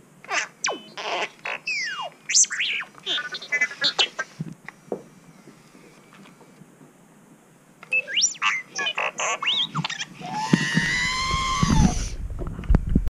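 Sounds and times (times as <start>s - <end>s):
toy robot electronic beeps and whistles: 0.6s - 4.4s, 7.9s - 12.2s
low rumble of rolling toy: 10.2s - 13.0s.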